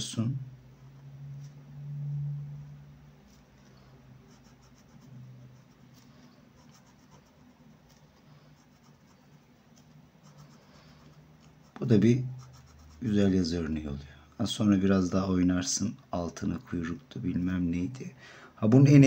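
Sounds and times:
low steady hum: 0:00.0 - 0:19.0
pen scratching on paper: 0:03.2 - 0:13.2.

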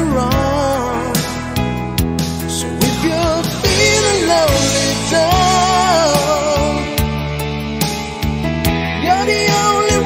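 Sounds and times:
person singing: 0:00.0 - 0:01.7, 0:02.4 - 0:07.2, 0:08.9 - 0:10.0
guitar: 0:00.0 - 0:10.0
pop love song: 0:00.0 - 0:10.0.

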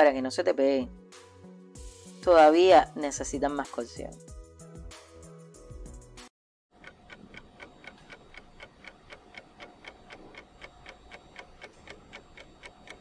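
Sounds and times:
clock ticking: 0:06.8 - 0:13.0.

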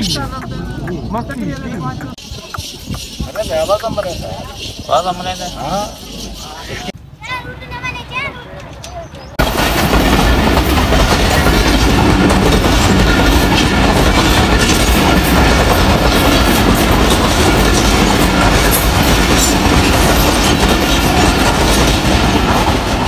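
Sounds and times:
train rumbling past: 0:00.0 - 0:23.0
wheels clicking over rail joints: 0:08.5 - 0:23.0.

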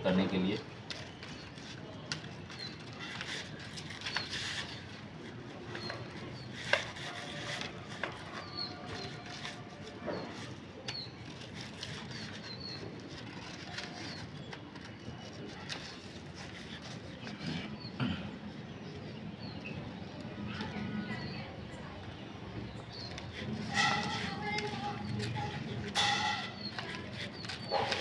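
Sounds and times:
small birds chirping: 0:00.0 - 0:28.0
scissors cutting paper: 0:00.9 - 0:17.5, 0:23.1 - 0:28.0.

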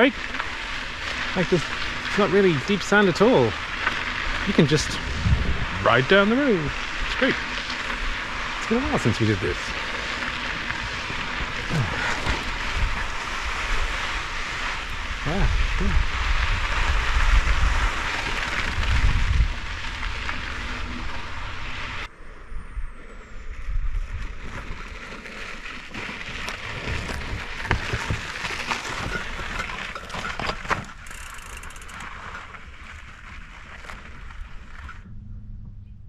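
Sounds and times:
stones and bike knocking: 0:00.0 - 0:15.0, 0:24.2 - 0:34.9
bicycle tyres crunching on dirt: 0:00.0 - 0:22.1, 0:23.5 - 0:35.1
wind rushing over microphone: 0:04.3 - 0:25.0.

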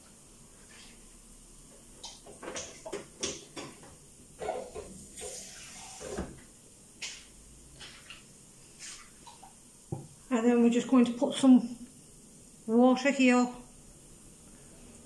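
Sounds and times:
kitchen items knocking and clinking: 0:02.0 - 0:05.2.

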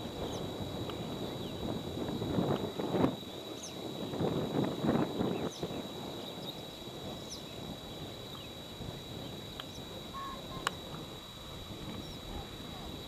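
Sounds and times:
faint high bird chirps: 0:12.0 - 0:12.4.

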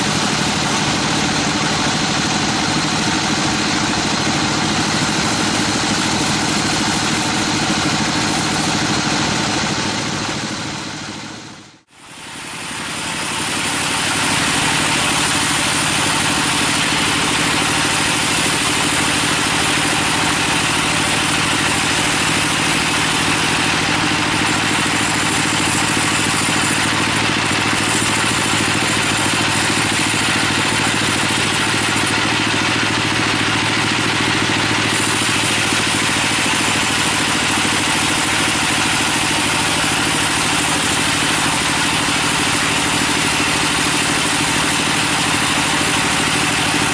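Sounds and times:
saw drive humming: 0:00.0 - 0:46.9
band saw blade hissing in wood: 0:12.1 - 0:46.9.

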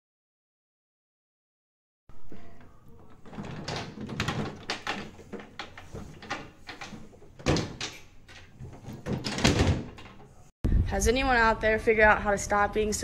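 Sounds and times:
cabinet door knocks and rattles: 0:03.1 - 0:10.3.

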